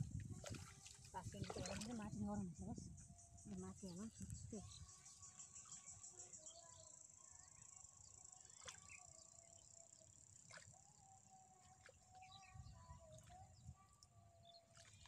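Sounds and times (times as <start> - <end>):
faint bird chirps: 1.4 - 15.0
insect drone: 1.9 - 13.6.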